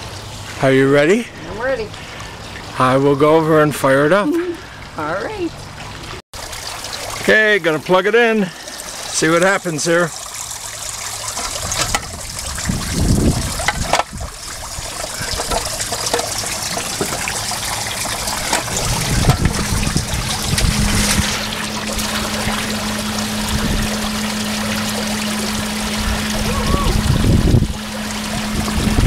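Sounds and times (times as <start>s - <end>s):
water splashing into pond: 5.6s - 29.0s
steady low hum: 10.5s - 29.0s.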